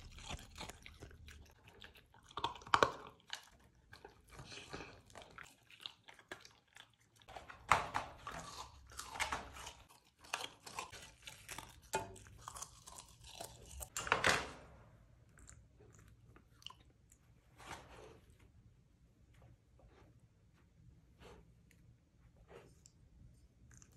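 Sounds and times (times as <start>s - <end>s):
puppy crunching food: 0.0s - 14.0s.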